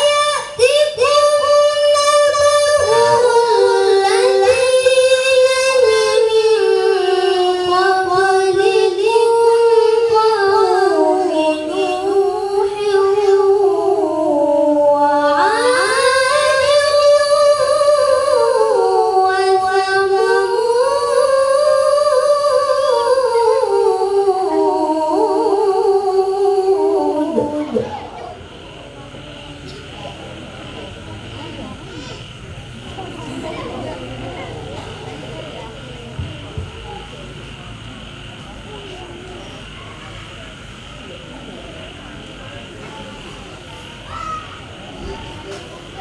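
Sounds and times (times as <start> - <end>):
boy reciting melodically into microphone: 0.0 - 28.5.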